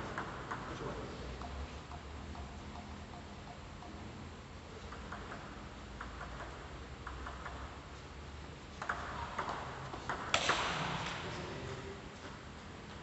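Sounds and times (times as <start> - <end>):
ping pong ball clicking: 4.8 - 7.8, 8.8 - 10.8.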